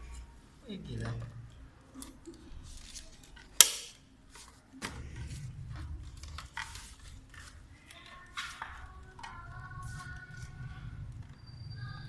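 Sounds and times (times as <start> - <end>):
plastic wrap rustling: 2.4 - 10.8.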